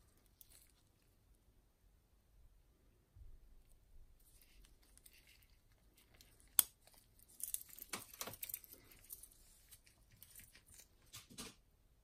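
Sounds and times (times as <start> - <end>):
gloved hands rustling: 4.1 - 11.3.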